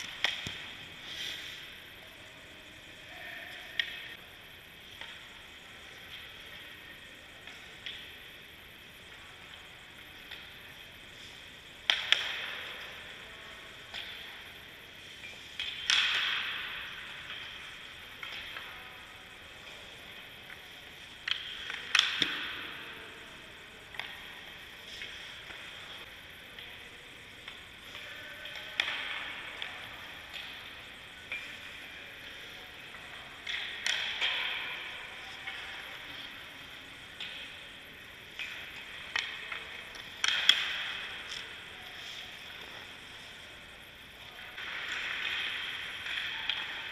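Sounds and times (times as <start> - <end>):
hockey stick hitting puck: 0.0 - 1.4, 11.2 - 13.0, 15.3 - 19.3, 21.2 - 23.0, 27.5 - 37.6, 38.4 - 43.3, 44.2 - 46.9
skates hissing on ice: 0.9 - 1.8.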